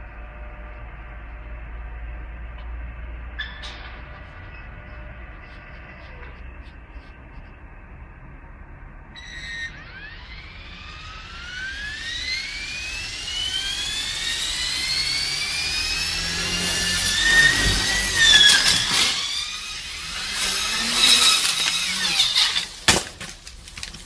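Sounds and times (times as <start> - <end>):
model helicopter motor whine: 8.6 - 22.9.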